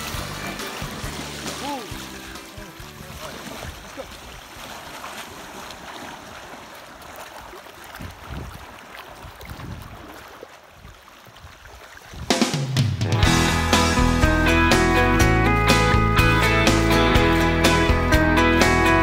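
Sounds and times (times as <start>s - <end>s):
river water rushing and splashing: 0.0s - 14.2s
guitar music: 13.0s - 19.0s.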